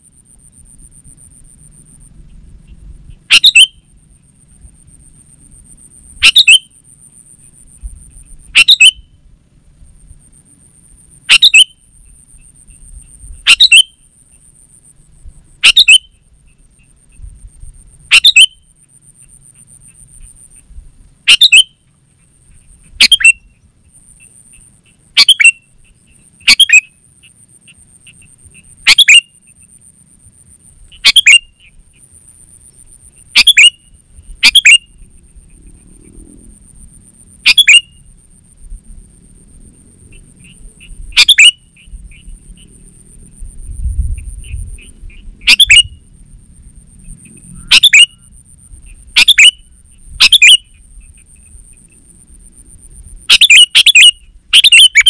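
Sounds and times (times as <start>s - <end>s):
bird sharp calls: 2.2s - 3.9s, 6.2s - 6.7s, 7.4s - 9.2s, 11.3s - 14.5s, 15.6s - 17.3s, 18.1s - 29.8s, 30.9s - 32.1s, 32.8s - 36.2s, 37.4s - 38.1s, 40.1s - 42.8s, 44.0s - 46.0s, 47.0s - 52.0s, 53.3s - 55.0s.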